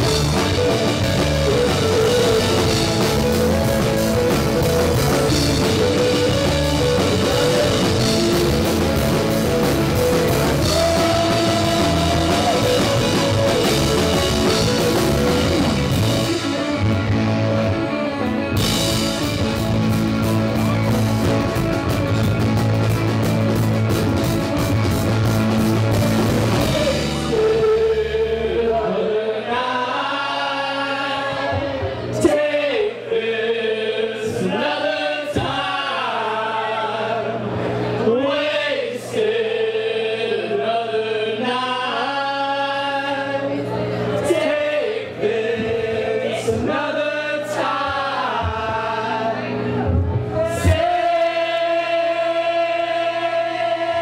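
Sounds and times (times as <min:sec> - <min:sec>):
voices singing: 0:00.0 - 0:19.4, 0:26.3 - 0:54.0
live rock band playing: 0:00.0 - 0:28.7.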